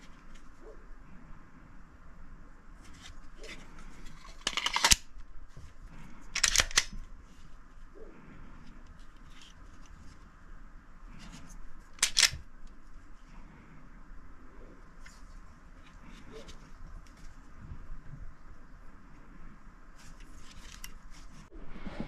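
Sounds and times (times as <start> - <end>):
pistol mechanical clicks: 4.3 - 5.1, 6.4 - 7.0, 12.0 - 12.4.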